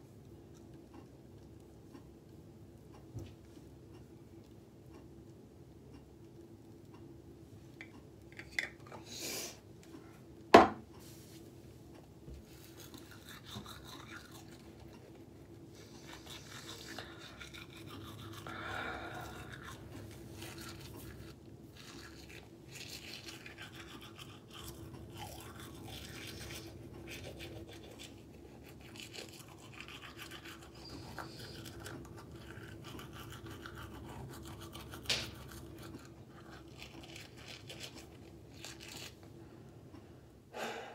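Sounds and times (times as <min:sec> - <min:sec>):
toothbrush scrubbing teeth: 0:12.5 - 0:39.2.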